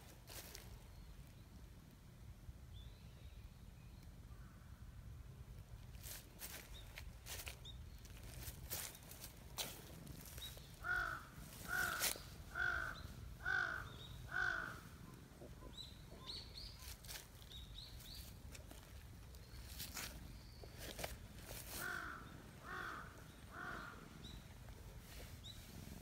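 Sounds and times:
small birds chirping: 5.9 - 26.0
crow cawing: 10.8 - 15.0, 21.7 - 24.1.

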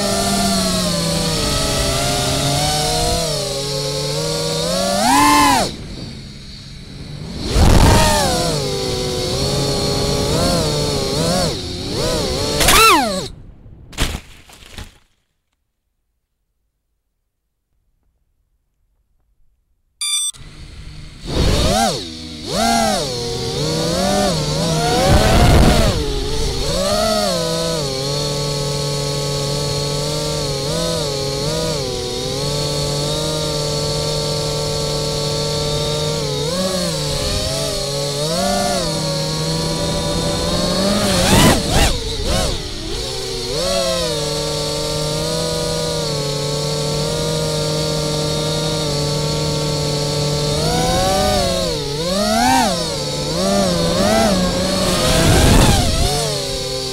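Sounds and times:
drone motors whining: 0.0 - 13.4, 20.0 - 56.9.

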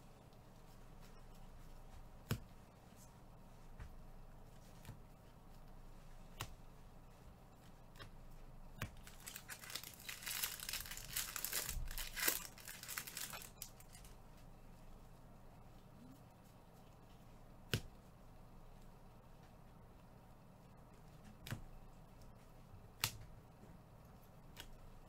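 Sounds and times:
foil wrapper crinkling: 8.9 - 14.2.

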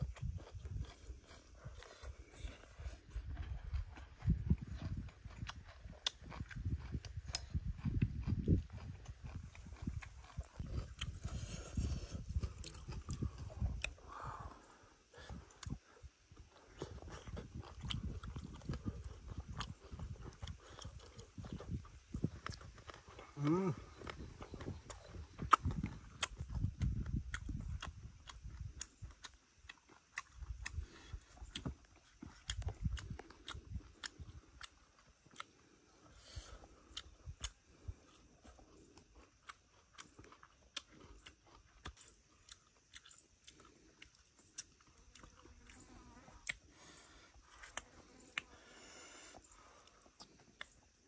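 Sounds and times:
man chewing food: 0.0 - 51.0
mouth clicks and smacks: 16.7 - 35.6.

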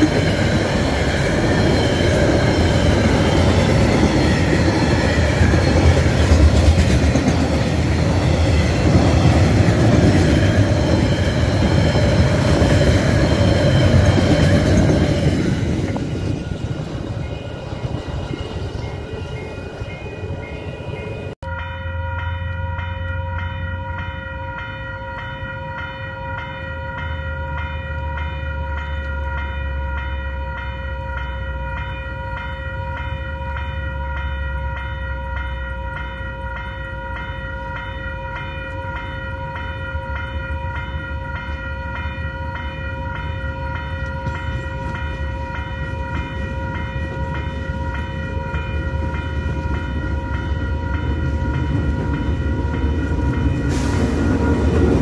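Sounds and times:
diesel locomotives rumbling: 0.0 - 55.0
level crossing bells ringing: 17.0 - 55.0.

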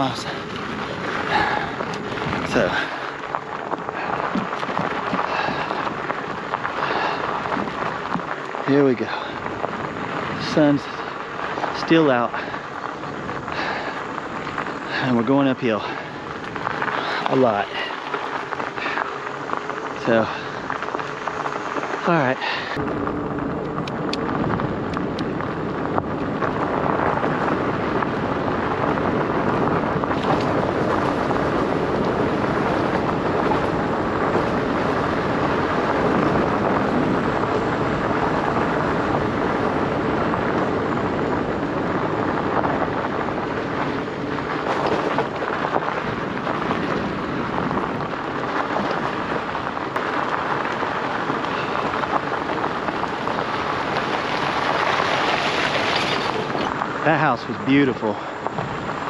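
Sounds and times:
bike tyres rolling on gravel: 0.0 - 59.0
wind noise on microphone: 0.0 - 59.0.

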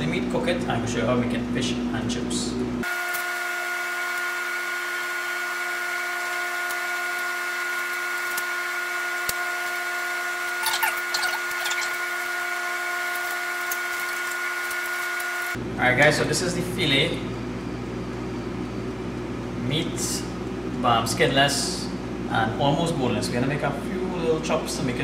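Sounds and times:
machine hum: 0.0 - 25.0
high scraping squeaks: 10.6 - 12.2.

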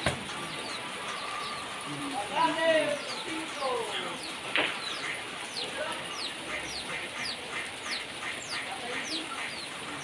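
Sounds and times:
small birds chirping: 0.0 - 10.0.

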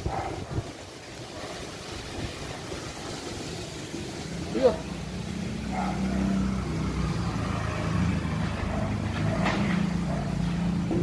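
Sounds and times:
vehicle engine humming: 2.2 - 11.0.

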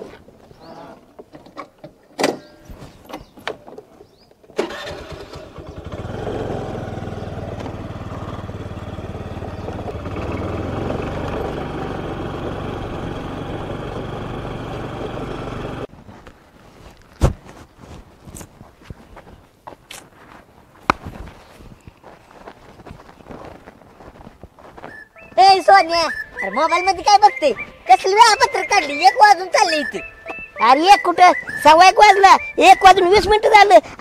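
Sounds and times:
vehicle engine running: 4.9 - 15.9.

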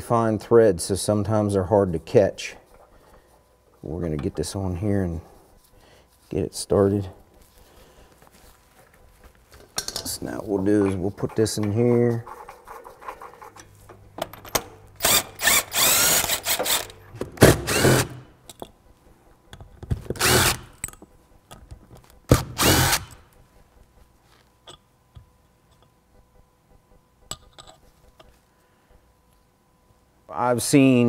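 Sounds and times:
impact wrench hammering: 14.5 - 18.2.

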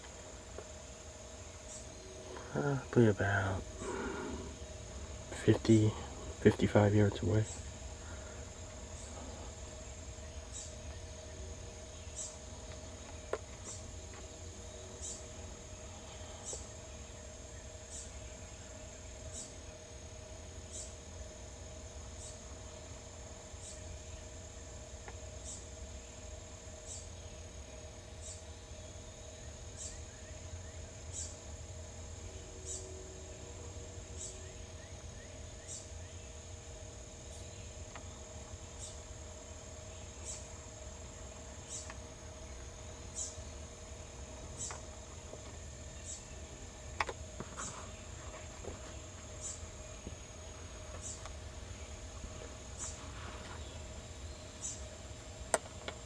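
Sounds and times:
insects trilling: 0.0 - 56.0.

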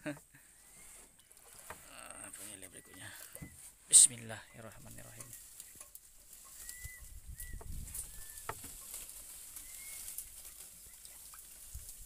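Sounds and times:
insect hiss: 5.3 - 12.0
bird whistle-like note: 6.6 - 8.5, 9.6 - 10.1.

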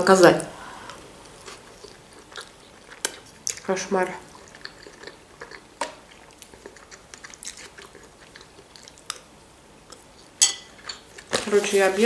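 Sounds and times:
quiet chewing: 0.8 - 11.4.

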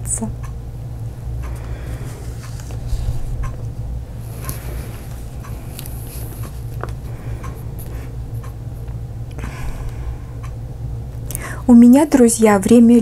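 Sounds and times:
steady low hum: 0.0 - 13.0
paper rustling: 2.1 - 3.3.

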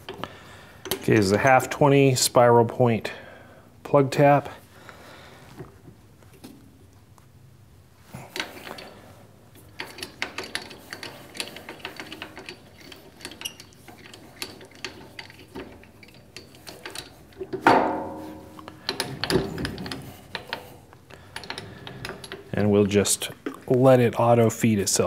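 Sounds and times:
metal knocks: 17.6 - 20.5
ringing metal clank: 17.7 - 19.6.

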